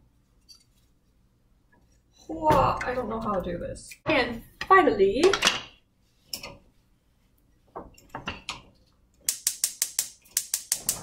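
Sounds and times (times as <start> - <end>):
gas burner igniter clicking: 9.3 - 11.0.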